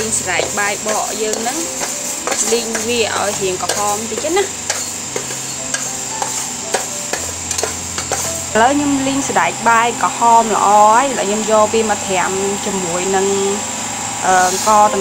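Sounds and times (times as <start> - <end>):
beans rattling in a metal pan: 0.0 - 8.6
metal spoon scraping a pan: 0.0 - 8.6.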